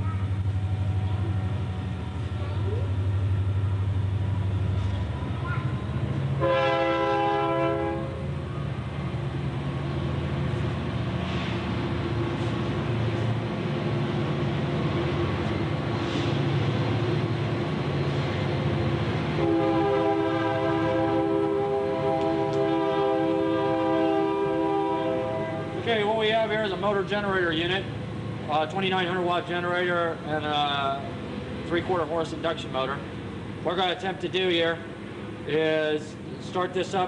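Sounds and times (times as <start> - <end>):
loud multi-pitch horn tone: 6.4 - 8.2, 19.4 - 25.8.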